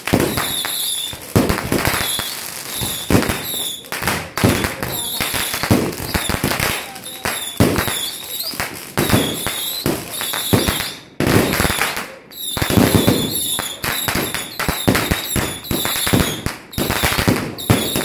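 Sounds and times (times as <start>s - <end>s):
fireworks bangs and crackling: 0.0s - 18.0s.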